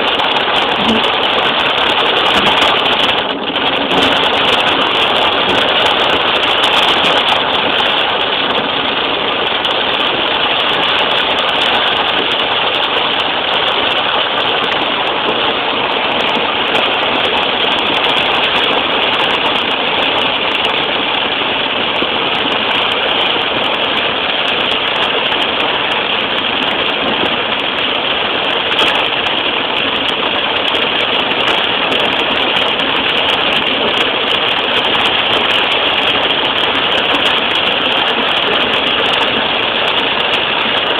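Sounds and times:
car engine: 0:00.0 - 0:40.9
tyres on wet road: 0:00.0 - 0:40.9.

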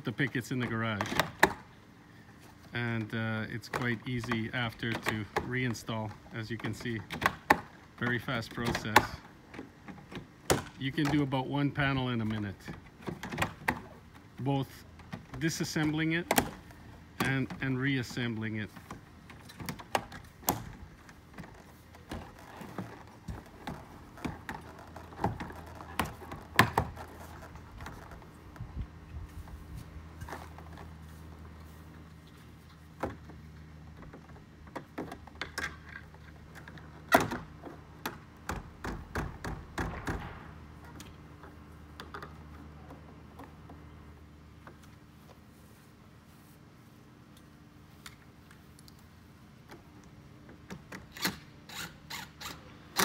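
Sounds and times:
plastic fence pickets knocking: 0:36.6 - 0:40.4.

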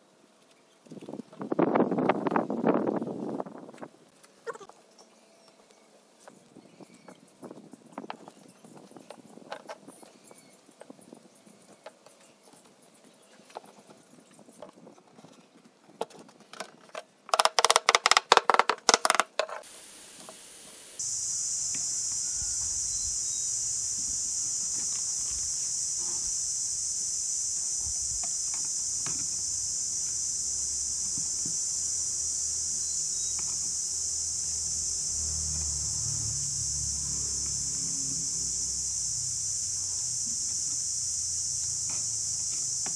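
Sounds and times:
wood clicking on wood: 0:17.3 - 0:19.5
steady high hiss: 0:19.0 - 0:42.9.

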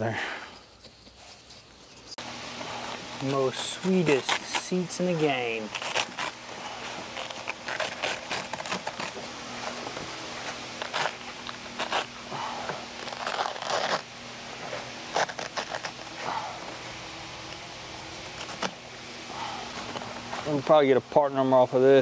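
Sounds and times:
low steady hum: 0:00.0 - 0:22.0
cloth rag scraping plastic trim: 0:02.8 - 0:06.4.

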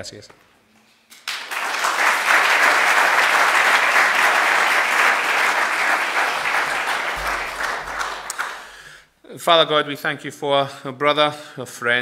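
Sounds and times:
audience applauding: 0:01.2 - 0:08.9.

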